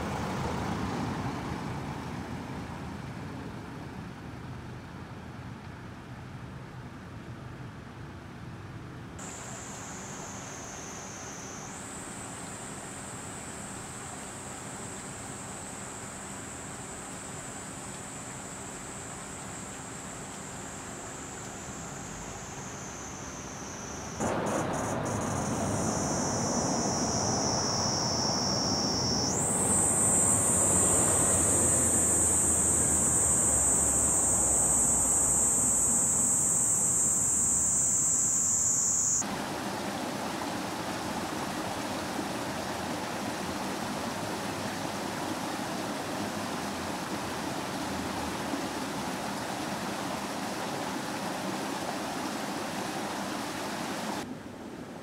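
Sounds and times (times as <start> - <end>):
cicadas droning: 9.2 - 54.3
background hiss: 9.2 - 55.0
water rushing at a water wheel: 39.2 - 54.2.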